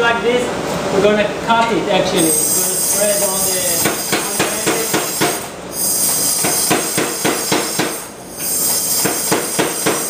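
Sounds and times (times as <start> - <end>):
air hissing: 2.2 - 10.0
power hammer striking steel: 3.8 - 10.0.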